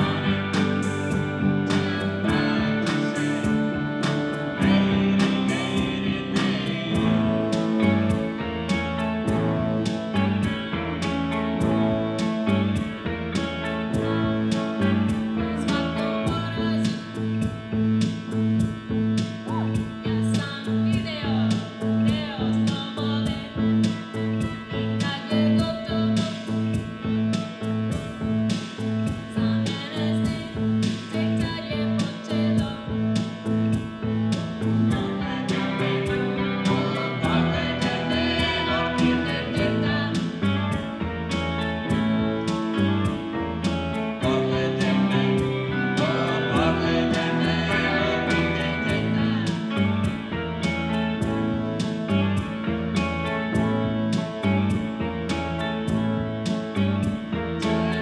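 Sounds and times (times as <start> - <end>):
person singing: 0.0 - 17.5, 29.3 - 52.7, 57.2 - 58.0
live rock band playing: 0.0 - 58.0.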